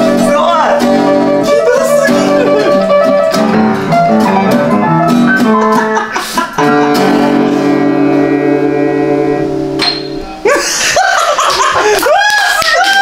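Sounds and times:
guitar strumming chords: 0.0 - 10.5
piano playing: 0.0 - 10.9.

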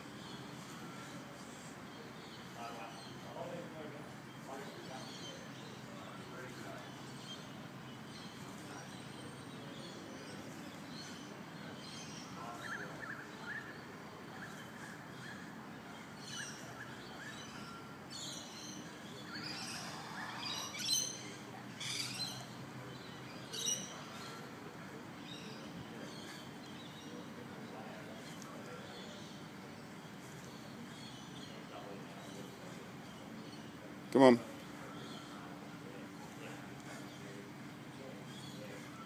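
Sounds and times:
outdoor background noise: 0.0 - 39.0
birds chirping and calling: 0.2 - 24.6.

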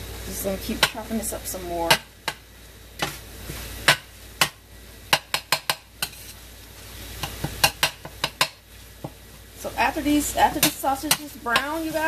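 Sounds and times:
meat sizzling: 0.0 - 12.0
spatula tapping and scraping pan: 0.8 - 1.1, 3.8 - 6.4, 7.2 - 9.2, 10.4 - 12.0.

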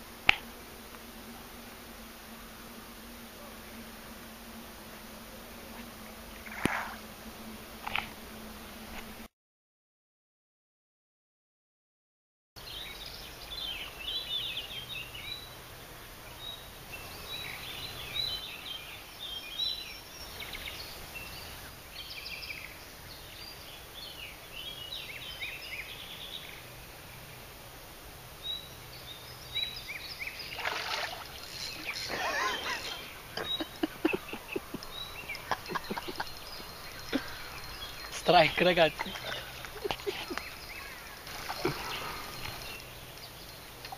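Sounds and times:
faint low hum: 12.6 - 43.9
small birds singing: 12.6 - 43.9.

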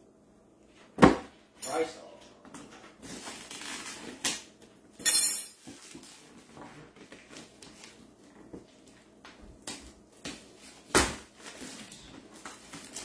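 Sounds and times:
cardboard packaging rustling: 2.9 - 4.3, 10.4 - 13.0.

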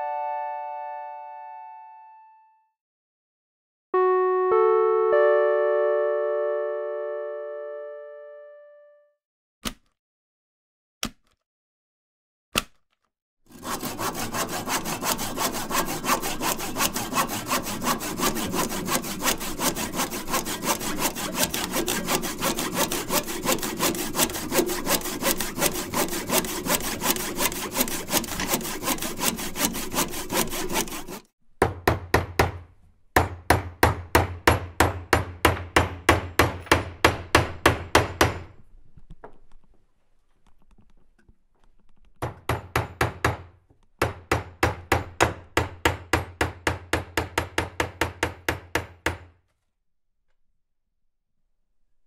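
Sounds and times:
saw rasping strokes: 13.5 - 31.4.

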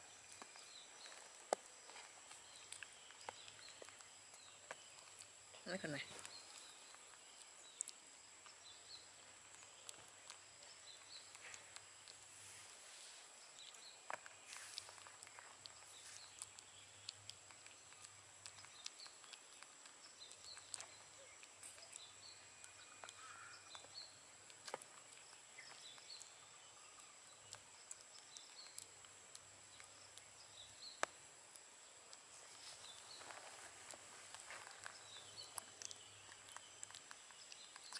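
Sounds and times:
faint high hiss: 11.4 - 13.6.

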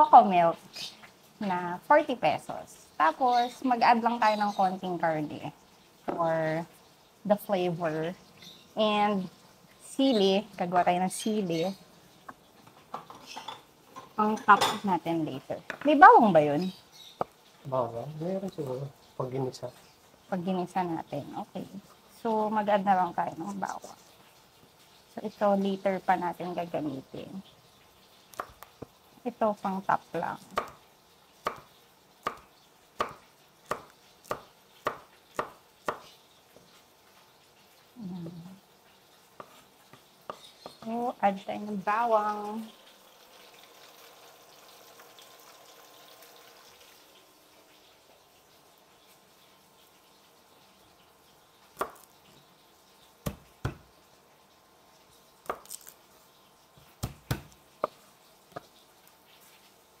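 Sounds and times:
knife chopping on wooden board: 30.5 - 30.8, 31.4 - 36.1, 53.2 - 53.9, 57.0 - 58.6.

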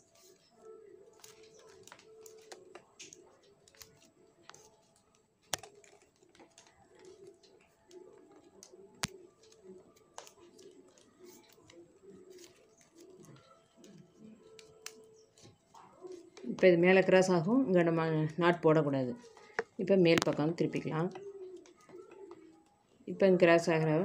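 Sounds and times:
plastic strips rustling and clicking: 0.0 - 16.7.

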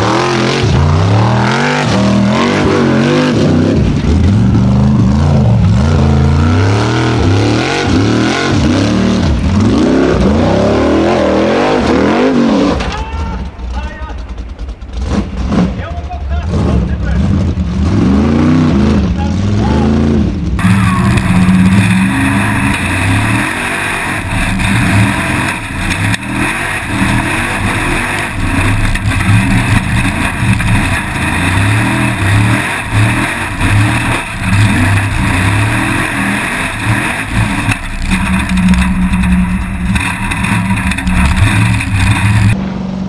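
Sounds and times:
buggy engine revving: 0.0 - 43.0
wind rush and chassis noise: 20.3 - 43.0.

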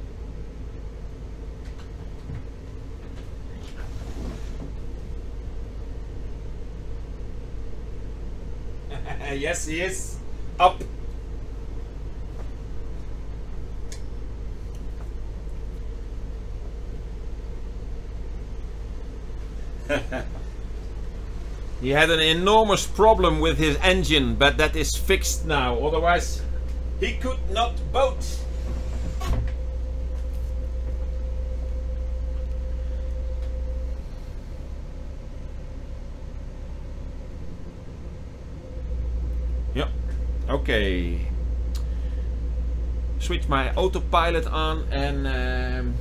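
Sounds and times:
boat diesel engine droning: 0.0 - 46.0.

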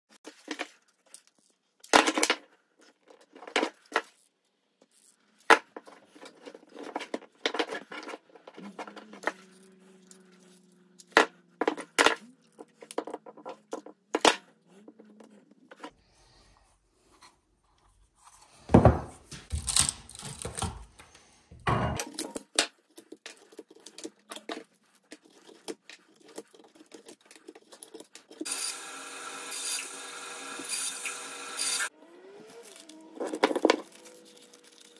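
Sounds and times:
plastic pieces knocking and clattering: 0.3 - 4.2, 19.5 - 21.0, 33.2 - 34.9
bandsaw running: 28.4 - 34.9
tearing: 32.4 - 34.9.

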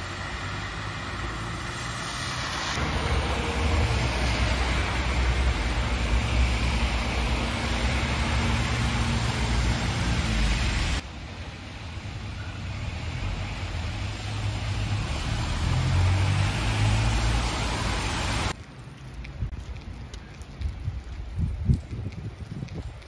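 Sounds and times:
vehicle passing: 0.0 - 11.0, 12.6 - 18.6
cars on wet asphalt: 0.0 - 23.0.

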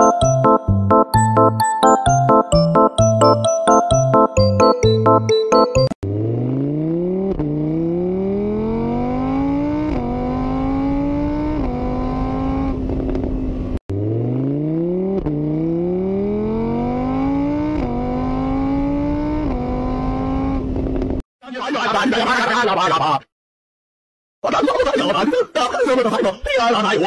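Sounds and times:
vehicle engine accelerating: 6.0 - 21.2.

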